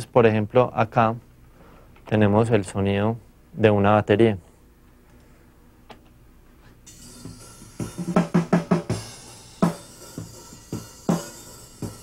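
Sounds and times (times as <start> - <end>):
cymbal wash: 6.9 - 12.0
drum hits: 6.9 - 12.0.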